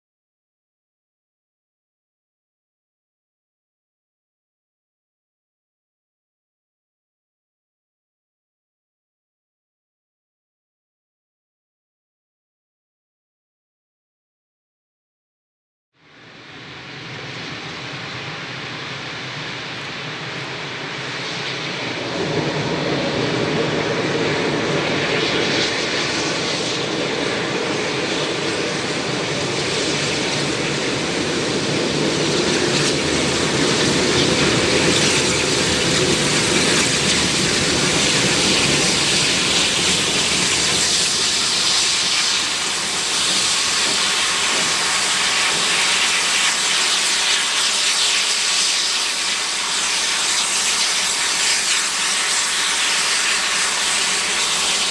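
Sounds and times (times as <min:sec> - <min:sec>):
steam locomotive hissing steam: 0:16.1 - 0:25.4, 0:26.1 - 0:54.9.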